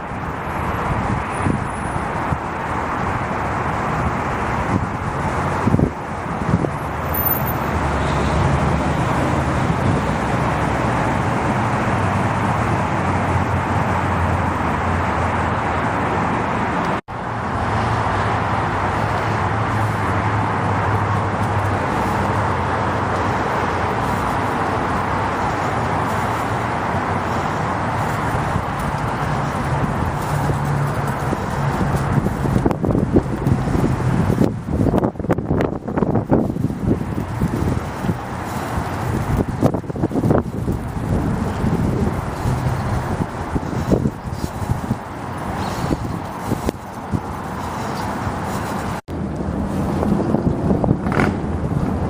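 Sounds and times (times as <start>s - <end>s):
road traffic noise: 0.0s - 52.0s.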